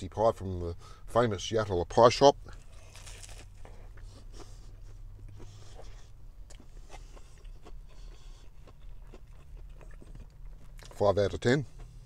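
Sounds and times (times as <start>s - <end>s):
low steady hum: 0.0s - 12.0s
person chewing crunchy food: 2.5s - 12.0s.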